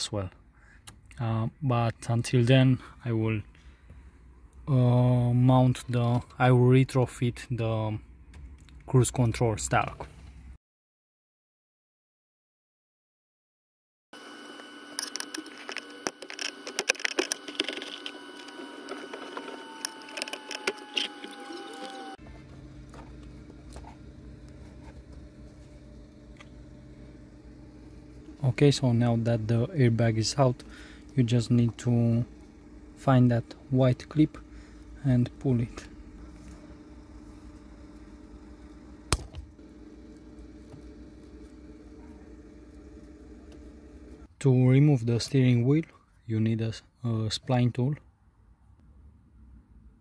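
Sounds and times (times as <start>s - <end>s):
steady low hum: 14.3s - 45.9s
screwdriver clicking and scraping: 15.0s - 22.0s.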